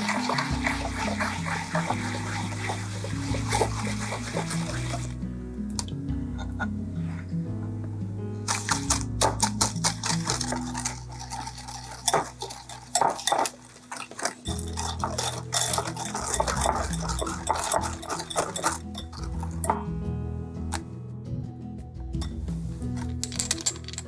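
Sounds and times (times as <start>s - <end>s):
background music: 0.0s - 24.0s
whisk clinking against glass bowl: 8.5s - 19.8s.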